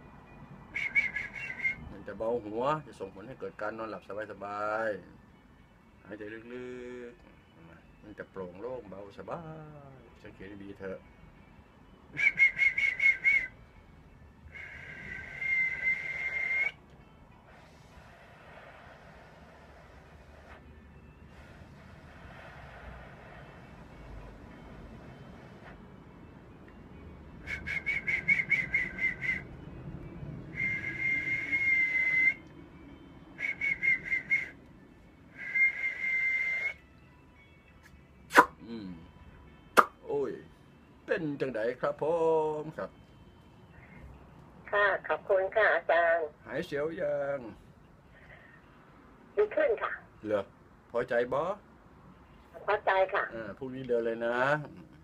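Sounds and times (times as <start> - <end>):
man whistling: 0.7 - 2.0, 12.1 - 13.6, 14.5 - 16.8, 27.4 - 29.7, 30.4 - 34.6, 35.3 - 36.9.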